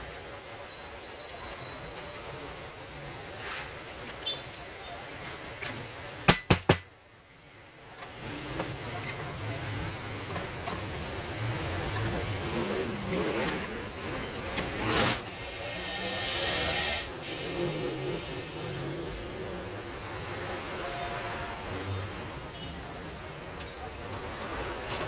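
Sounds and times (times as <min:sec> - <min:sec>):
metal tools clinking on steel: 0:00.0 - 0:06.2, 0:07.6 - 0:15.6, 0:22.6 - 0:25.0
steady hiss: 0:14.8 - 0:19.1.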